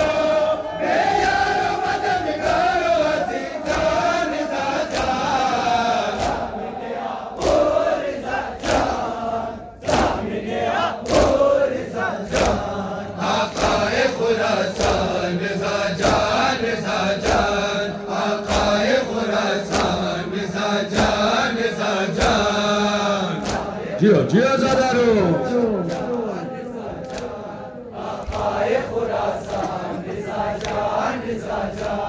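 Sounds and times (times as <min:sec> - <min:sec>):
crowd of men chanting: 0:00.0 - 0:32.0
hands slapping chests: 0:03.6 - 0:06.6, 0:07.4 - 0:09.1, 0:09.8 - 0:10.3, 0:11.0 - 0:11.4, 0:12.3 - 0:14.0, 0:14.6 - 0:15.2, 0:17.1 - 0:17.6, 0:18.3 - 0:20.1, 0:20.8 - 0:21.5, 0:22.1 - 0:22.6, 0:23.3 - 0:24.0, 0:24.6 - 0:32.0.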